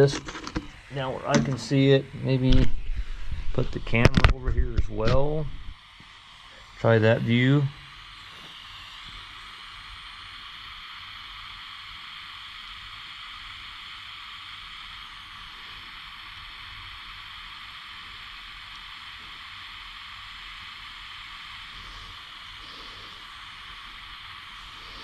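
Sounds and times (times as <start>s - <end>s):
soldering iron hissing: 0.0s - 25.0s.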